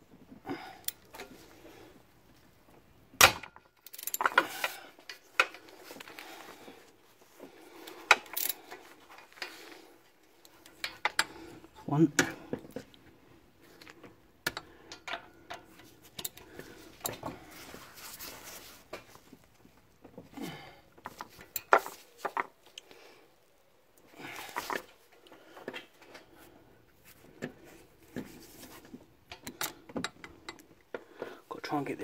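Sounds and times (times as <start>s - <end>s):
hand ratchet clicking and scraping: 3.8s - 6.2s, 7.8s - 9.7s.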